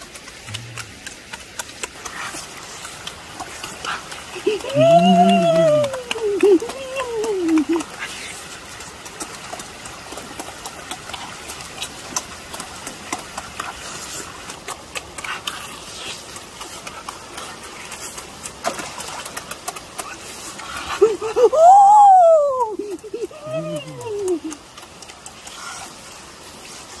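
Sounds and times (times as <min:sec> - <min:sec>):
chewing and lip-smacking: 0:00.0 - 0:21.8, 0:22.5 - 0:26.9
shallow stream rushing: 0:00.0 - 0:27.0
person exclaiming: 0:04.4 - 0:07.8, 0:21.1 - 0:24.5.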